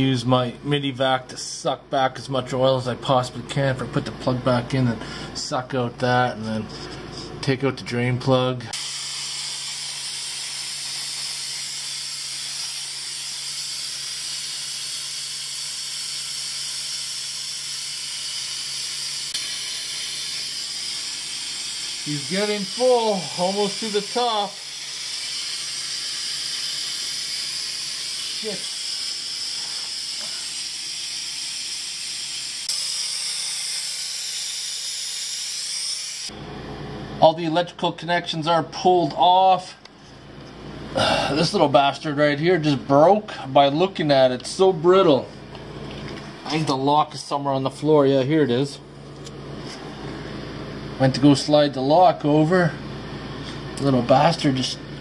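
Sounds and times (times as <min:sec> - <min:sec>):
air vacuum hissing: 0:08.7 - 0:37.5, 0:38.3 - 0:52.4.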